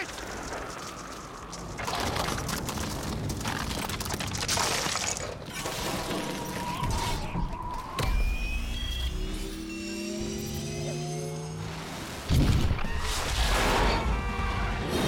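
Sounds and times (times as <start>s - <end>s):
ice cracking and shattering: 0.0s - 7.3s.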